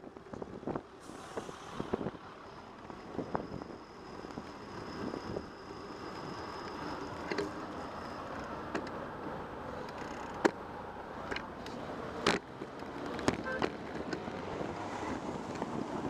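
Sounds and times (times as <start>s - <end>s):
bicycle tyre and wind noise: 0.0s - 10.5s.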